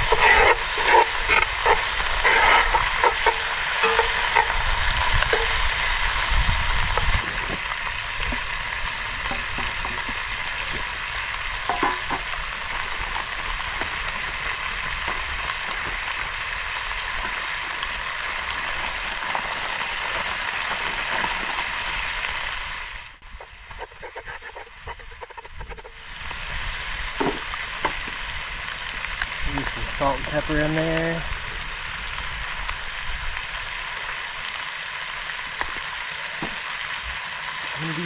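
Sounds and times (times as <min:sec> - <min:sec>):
clicks and scrapes: 0:00.0 - 0:05.6, 0:23.7 - 0:26.0
chicken and garlic sizzling in oil: 0:00.0 - 0:38.0.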